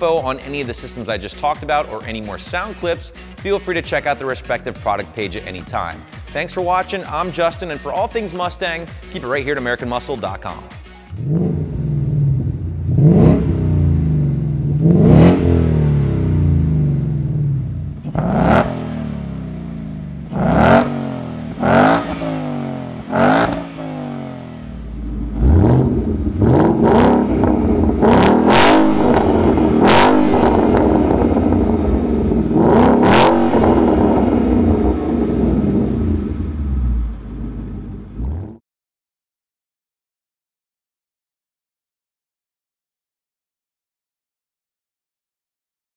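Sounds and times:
car engine revving: 11.1s - 38.6s.

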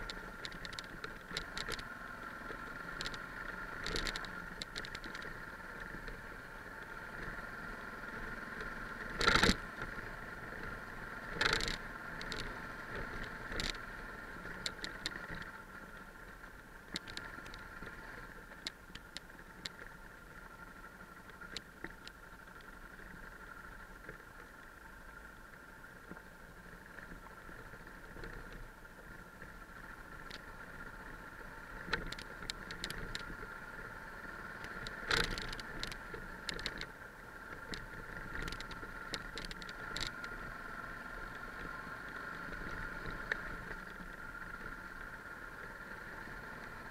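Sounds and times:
motorcycle engine running: 0.0s - 46.9s
bike knocks and rattles: 9.2s - 9.6s.

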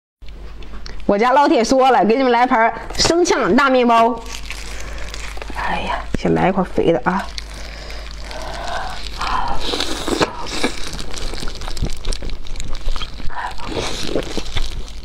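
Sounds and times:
gloved hands rustling lettuce: 3.2s - 15.0s
crisp bites through lettuce: 4.2s - 6.3s, 7.2s - 15.0s
wet clicky chewing: 4.2s - 6.3s, 7.0s - 15.0s.

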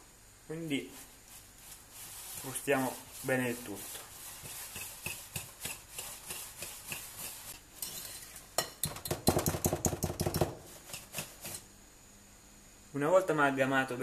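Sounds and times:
whisk clicking against glass bowl: 4.4s - 7.4s.

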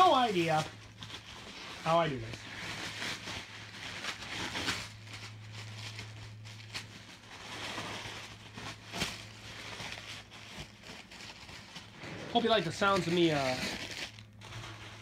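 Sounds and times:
paper rustling and crinkling: 0.0s - 15.0s
low hum: 11.8s - 15.0s.

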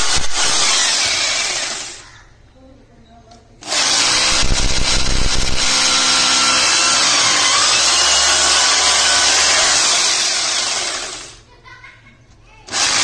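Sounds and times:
hammer drill boring into wall: 0.0s - 2.0s, 3.6s - 11.4s, 12.7s - 13.0s.

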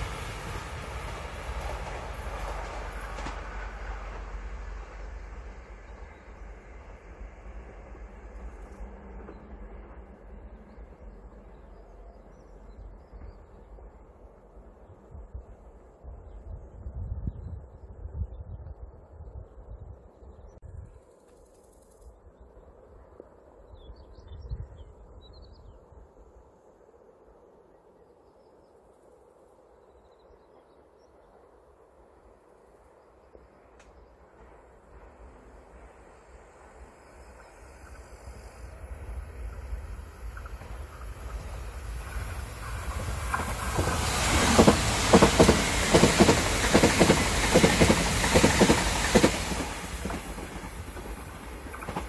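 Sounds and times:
train rushing past: 0.0s - 14.7s, 33.7s - 52.0s
faint steady hiss: 25.8s - 46.6s.

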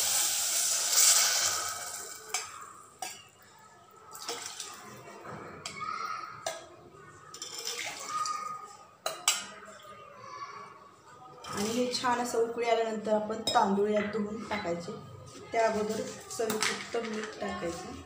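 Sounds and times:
bubbling and sizzling oil: 0.0s - 2.5s
spoon clinking against pot: 9.0s - 9.6s.

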